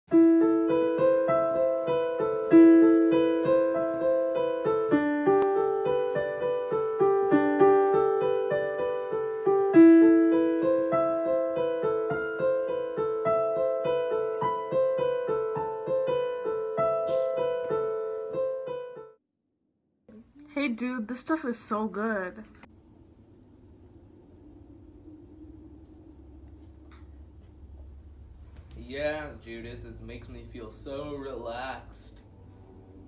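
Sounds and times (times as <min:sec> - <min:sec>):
piano single notes: 0:00.1 - 0:19.2.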